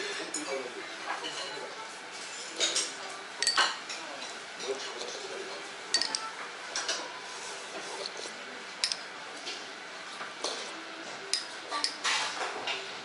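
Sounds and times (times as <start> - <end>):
steady background hum: 0.0 - 13.0
china bowls clinking: 5.9 - 6.3.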